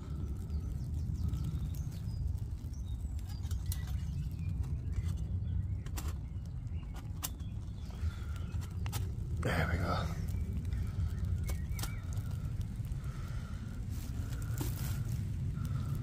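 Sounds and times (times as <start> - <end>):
faint birdsong: 0.0 - 16.0
low rumble: 0.0 - 16.0.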